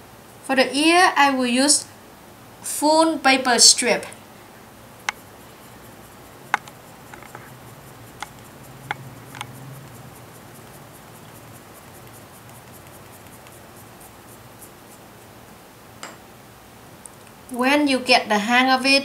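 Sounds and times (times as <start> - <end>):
paper strip being wound: 5.0 - 15.0
light clicks of paper: 6.5 - 13.7.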